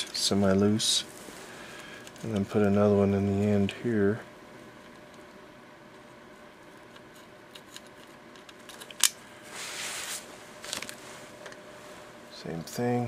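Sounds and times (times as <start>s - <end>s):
short rustle: 9.4s - 12.2s.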